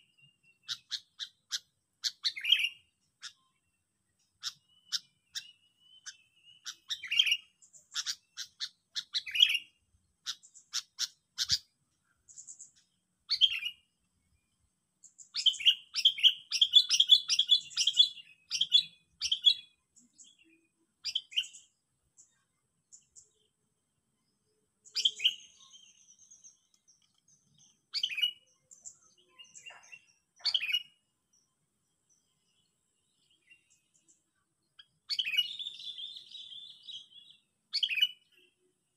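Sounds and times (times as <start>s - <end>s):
bulbul chirping and chattering: 0.5s - 3.5s, 4.2s - 13.9s, 15.0s - 23.5s, 24.8s - 31.0s.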